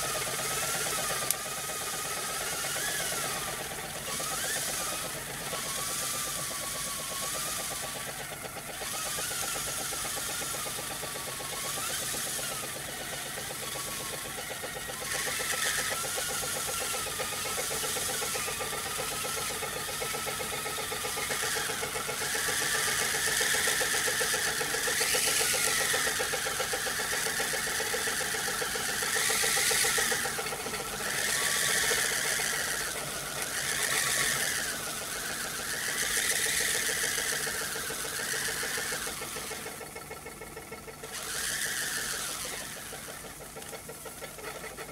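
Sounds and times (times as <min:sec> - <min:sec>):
fast even whirr: 0:00.0 - 0:44.9.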